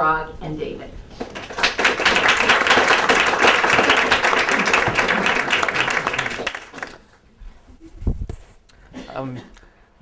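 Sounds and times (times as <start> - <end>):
audience applauding: 1.2 - 7.2.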